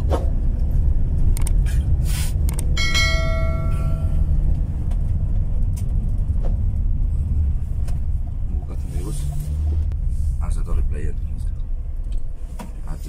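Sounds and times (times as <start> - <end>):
road and engine rumble: 0.0 - 13.0
bell ding: 2.8 - 4.3.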